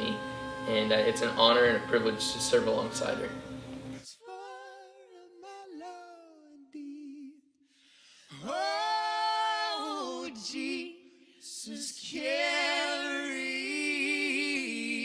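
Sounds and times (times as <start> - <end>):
person singing with vibrato: 0.0 - 7.4.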